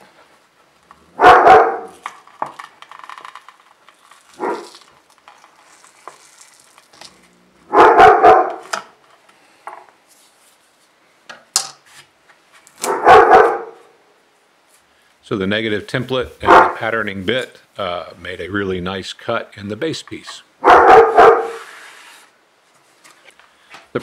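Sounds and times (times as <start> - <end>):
dog barking: 1.2 - 2.0, 4.4 - 4.7, 7.7 - 8.6, 12.8 - 13.9, 16.4 - 16.8, 20.6 - 21.6.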